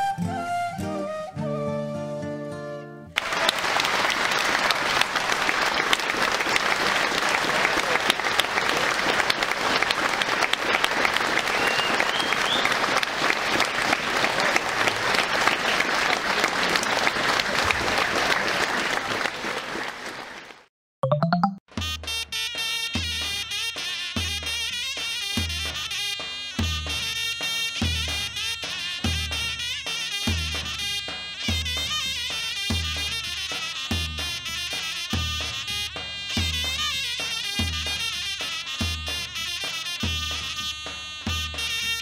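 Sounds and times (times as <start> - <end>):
flute music: 0.0 - 3.2, 11.4 - 12.7
audience applauding: 3.2 - 20.7.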